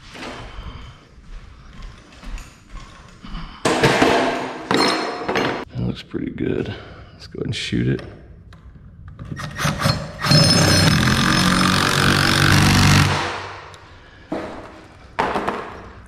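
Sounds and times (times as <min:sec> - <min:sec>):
cordless drill driving screw: 0:09.4 - 0:13.2.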